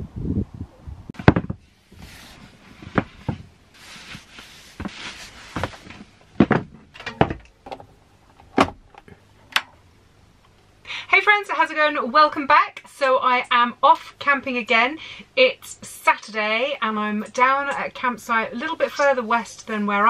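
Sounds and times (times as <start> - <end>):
sharp knocks and clunks: 1.2 - 1.6, 5.6 - 9.7
rustling: 1.2 - 7.4.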